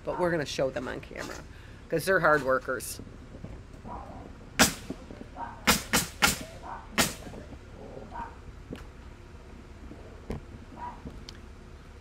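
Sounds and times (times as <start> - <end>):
sharp bangs: 4.6 - 7.4.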